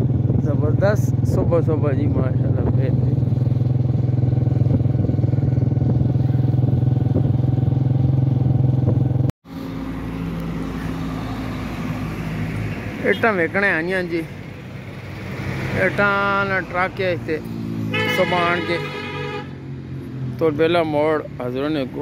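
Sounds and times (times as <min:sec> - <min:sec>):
vehicle engine running: 0:00.0 - 0:12.8.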